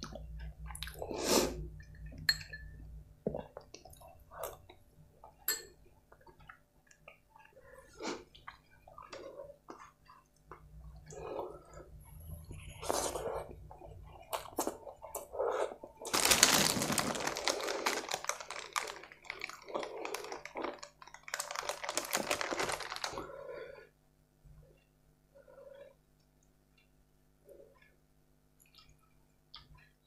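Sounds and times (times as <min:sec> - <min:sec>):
close-up chewing: 0:06.1 - 0:23.3
foil packet crinkling: 0:16.1 - 0:23.3.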